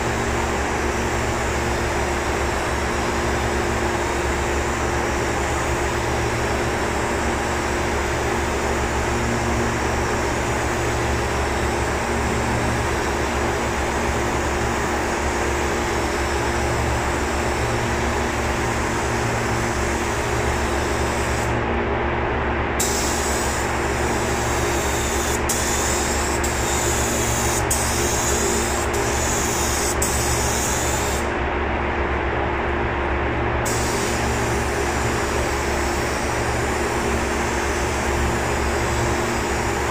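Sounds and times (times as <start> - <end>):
low machine drone: 0.0 - 39.9
paint spray gun hissing: 22.8 - 31.3, 33.7 - 36.8.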